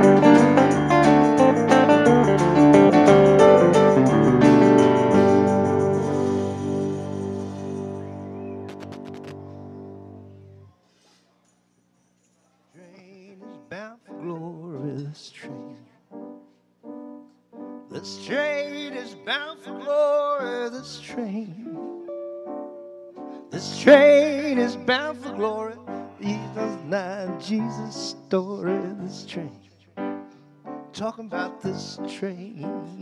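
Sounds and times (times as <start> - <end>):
piano music with held melody: 0.0 - 10.7, 12.8 - 33.0.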